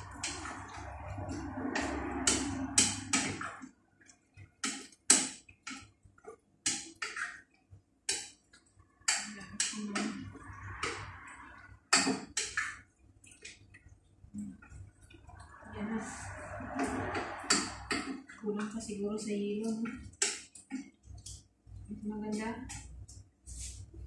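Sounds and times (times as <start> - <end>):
spoon scraping a cooking pot: 0.0 - 3.6, 16.0 - 18.3.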